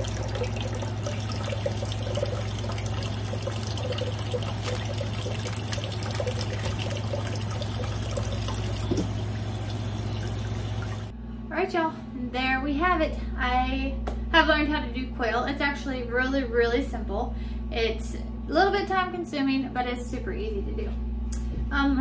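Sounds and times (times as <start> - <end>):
steady low hum: 0.0 - 22.0
tap water into metal bowl: 3.4 - 9.2.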